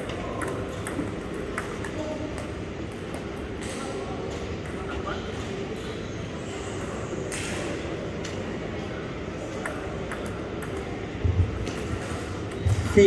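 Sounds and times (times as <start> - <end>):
table tennis ball clicking: 0.0 - 3.8, 9.6 - 11.0
background chatter: 0.0 - 13.0.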